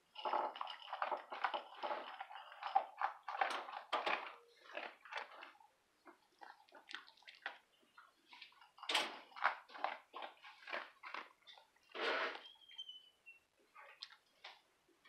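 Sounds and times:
kibble shifting in bowl: 0.0 - 5.5
dog crunching kibble: 0.2 - 7.6, 9.1 - 11.6.

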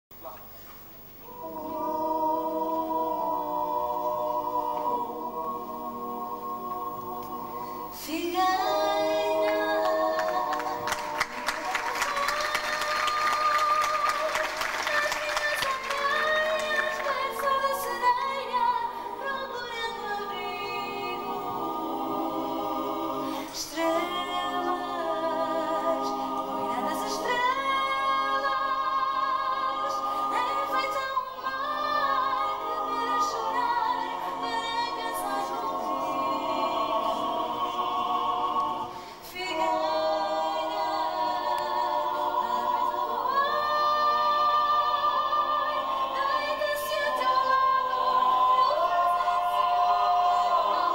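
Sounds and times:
group singing in harmony: 1.1 - 50.9.

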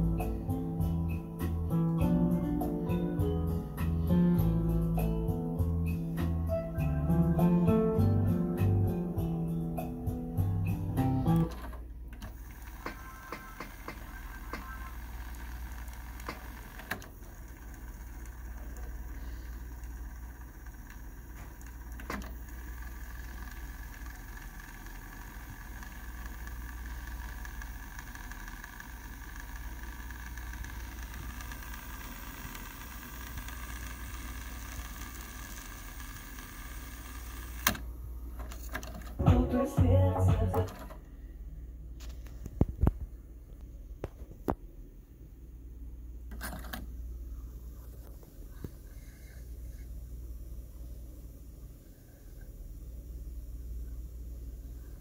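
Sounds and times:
cassette deck reel whir: 0.0 - 41.1, 45.7 - 55.0
tape transport clicks: 11.0 - 19.0, 20.6 - 22.5, 23.5 - 39.6, 40.2 - 41.0.

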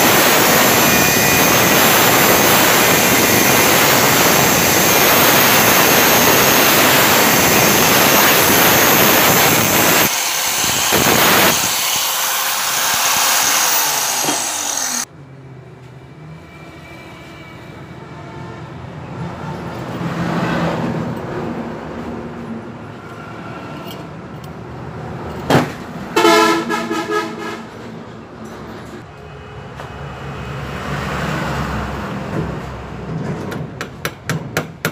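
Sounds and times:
angle grinder cutting steel: 0.0 - 15.1.

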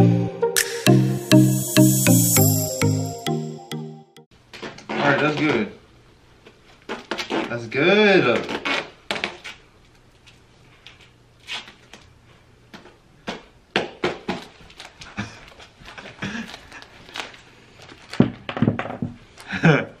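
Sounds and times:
duct tape ripping off roll: 8.4 - 9.6.

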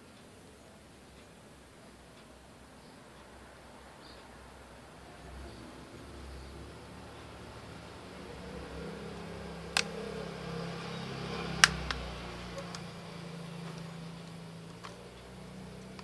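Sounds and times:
smartphone sharp clicks: 9.7 - 10.0, 11.6 - 12.9.

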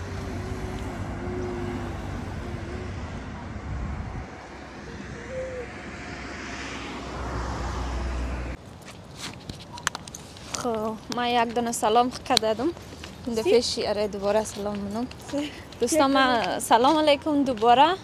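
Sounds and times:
passing vehicle engine: 0.0 - 8.6.

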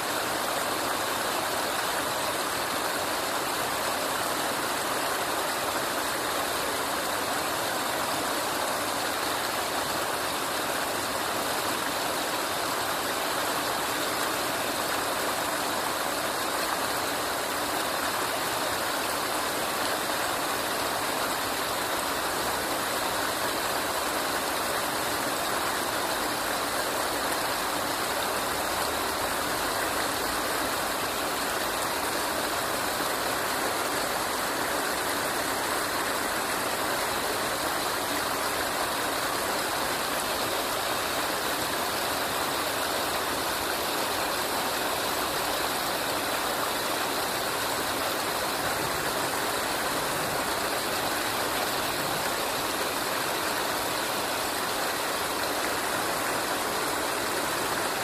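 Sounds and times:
stream rushing over rapids: 0.0 - 58.0.

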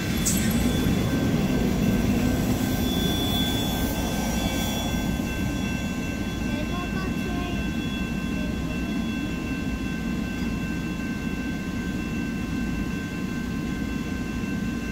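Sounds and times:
low rumble: 0.0 - 5.6
crossing warning bell ringing: 0.0 - 14.9.

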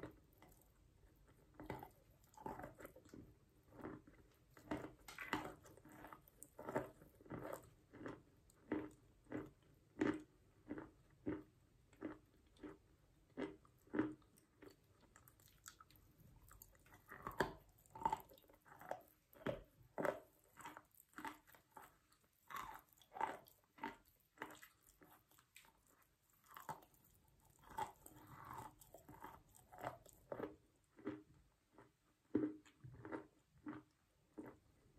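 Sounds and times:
chalk crunching when chewed: 0.0 - 34.8.

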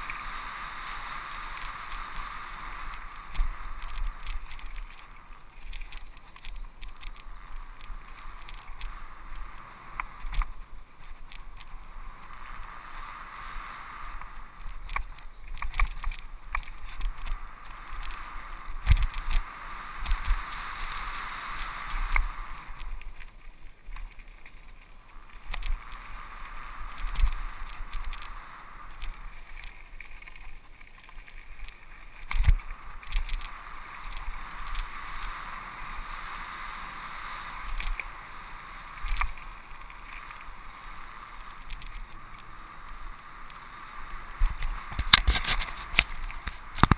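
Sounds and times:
wind on microphone: 0.0 - 23.2
bike tyres rushing on dirt: 0.0 - 46.9
bike rattling and thumping: 2.8 - 11.9, 14.6 - 21.2, 44.4 - 46.9.

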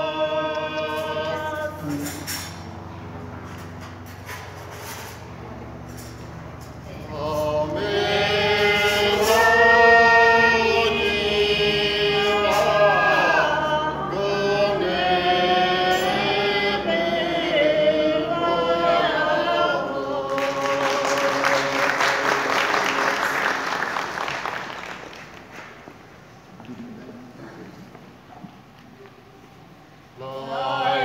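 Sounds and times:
person singing unaccompanied: 0.0 - 2.3, 6.9 - 22.5, 30.2 - 31.0
audience applause: 20.3 - 26.0.

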